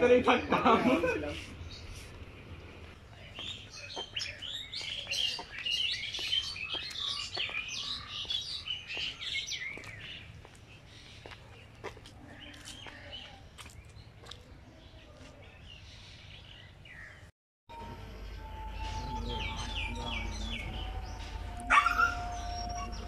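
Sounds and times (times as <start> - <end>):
birds chirping: 0.0 - 23.0
dog barking: 21.7 - 22.2.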